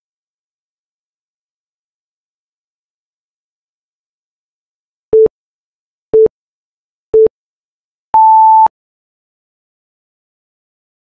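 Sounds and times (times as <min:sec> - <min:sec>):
longer higher timer beep: 0:08.2 - 0:08.7
short electronic timer beeps: 0:08.2 - 0:08.7.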